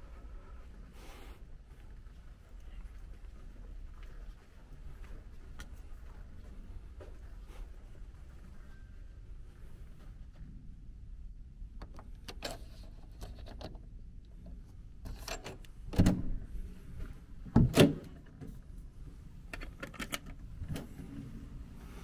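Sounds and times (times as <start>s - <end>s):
door lock clicks and rattles: 15.1s - 16.3s, 17.6s - 18.4s, 19.5s - 20.8s
door clunks: 15.9s - 16.4s, 17.5s - 18.2s.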